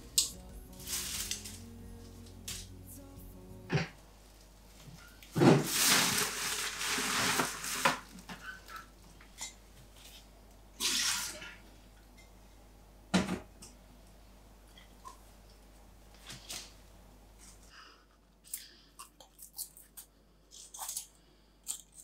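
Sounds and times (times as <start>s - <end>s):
stems and leaves rustling: 0.0s - 3.2s, 4.3s - 9.2s
flowers thumping into bin: 5.3s - 8.4s.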